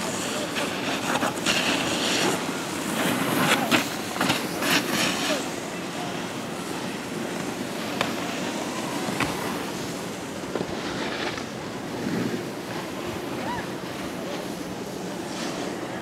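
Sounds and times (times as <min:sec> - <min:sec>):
rushing wind: 0:00.0 - 0:16.0.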